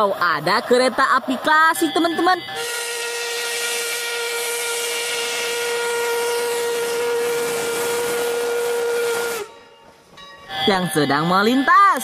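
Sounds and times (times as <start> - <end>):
steam hissing: 2.6 - 9.6
steam whistle blast: 2.6 - 9.7.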